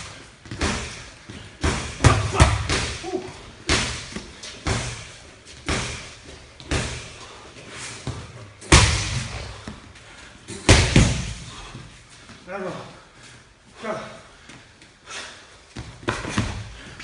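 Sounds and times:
punches slapping focus mitts: 0.0s - 7.2s, 8.1s - 9.5s, 10.6s - 11.5s.

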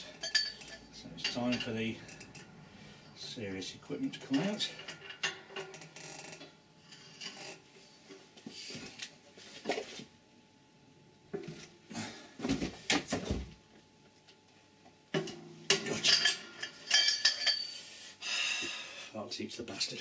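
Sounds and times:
tools clanking on metal: 0.0s - 2.4s, 4.2s - 5.8s, 15.1s - 17.7s.

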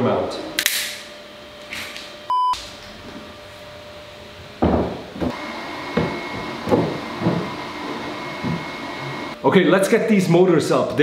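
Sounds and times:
electronic beep: 2.3s - 2.6s.

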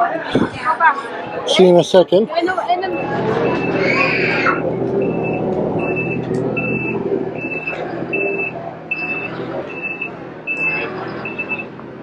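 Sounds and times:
engine humming: 2.4s - 12.0s
vehicle backup alarm beeping: 2.8s - 3.8s, 5.0s - 11.8s.

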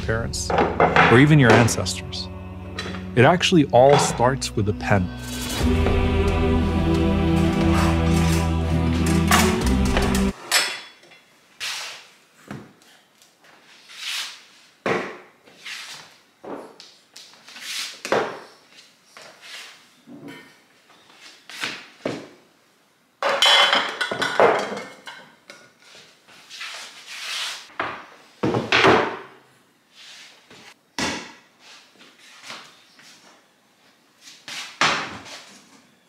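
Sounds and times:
kitchen items clattering on countertop: 23.2s - 25.9s.

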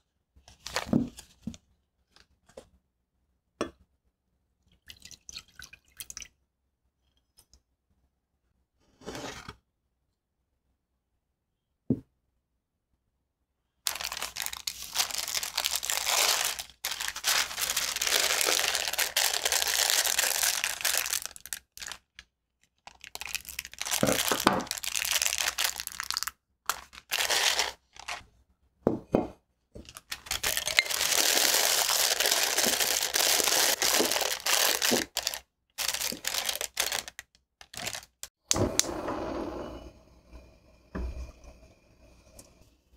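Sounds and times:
plastic bag crinkling: 13.9s - 22.2s, 22.8s - 28.2s, 29.8s - 38.3s.

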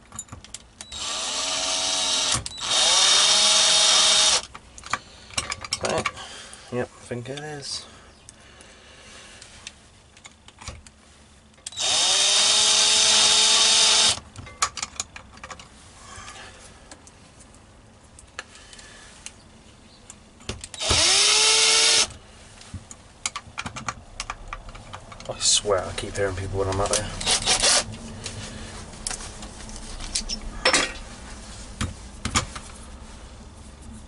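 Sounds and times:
power drill whining: 0.8s - 4.5s, 11.7s - 14.2s, 20.7s - 22.1s, 27.2s - 27.9s.

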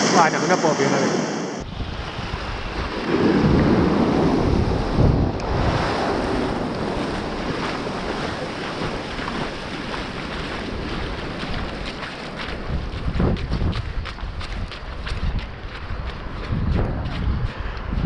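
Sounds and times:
small waves breaking: 0.0s - 13.2s
wind buffeting microphone: 0.0s - 18.0s.

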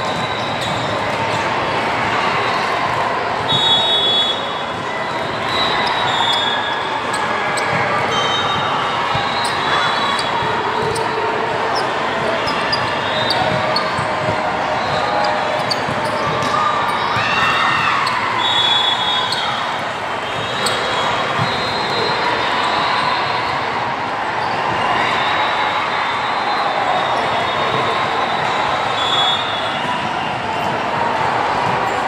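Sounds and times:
chatter of voices: 0.0s - 32.0s
shoe squeaks: 0.1s - 1.0s, 5.1s - 23.0s
volleyball hits and bounces: 13.3s - 18.2s.

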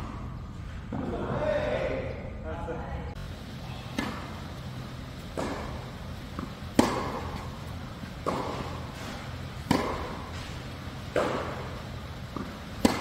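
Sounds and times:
steady low hum: 0.0s - 13.0s
rackets hitting tennis ball: 3.2s - 13.0s.

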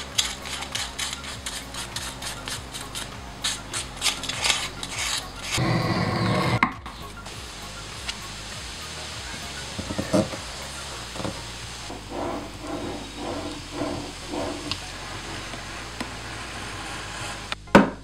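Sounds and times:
hand tool rasping on leather: 0.0s - 6.6s, 11.9s - 17.5s
rough scrape: 0.0s - 6.6s, 11.2s - 17.6s.

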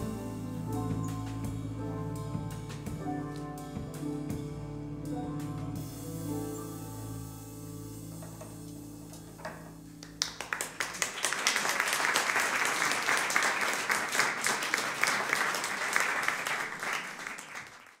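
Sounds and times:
jazz band held chord: 0.0s - 11.0s
audience applause: 10.0s - 18.0s.

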